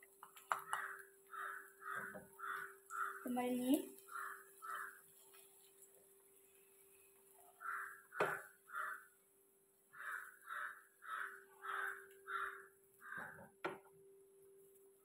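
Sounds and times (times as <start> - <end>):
bird calling: 0.6 - 3.3, 4.0 - 5.0, 7.6 - 9.1, 10.0 - 13.5.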